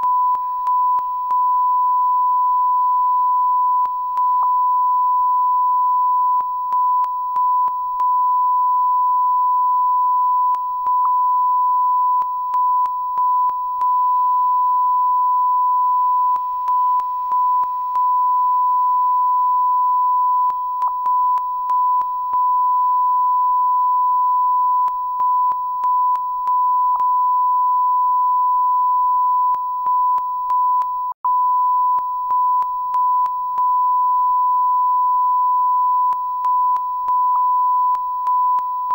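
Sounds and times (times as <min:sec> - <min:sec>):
steady electronic test tone: 0:00.0 - 0:38.9.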